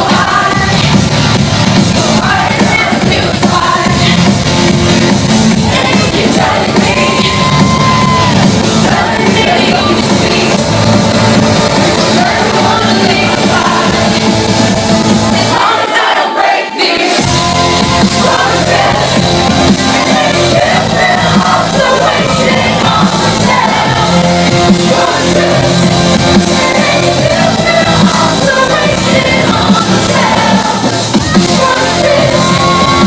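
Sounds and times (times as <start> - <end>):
electronic dance music: 0.0 - 33.0
woman singing into microphone: 2.0 - 4.3, 8.8 - 10.7, 12.0 - 14.2, 26.5 - 33.0.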